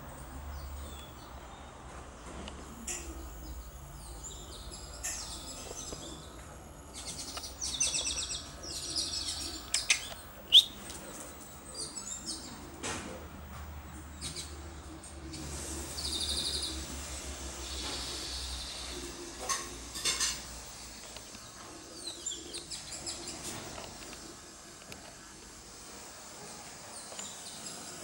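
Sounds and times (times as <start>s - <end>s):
steady low hum: 0.0s - 28.0s
small birds chirping and trilling: 2.8s - 12.8s, 13.9s - 25.0s, 26.8s - 28.0s.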